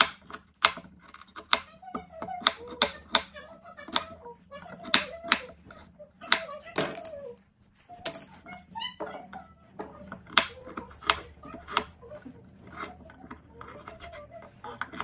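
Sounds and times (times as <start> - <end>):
knife cutting on cutting board: 10.2 - 15.0.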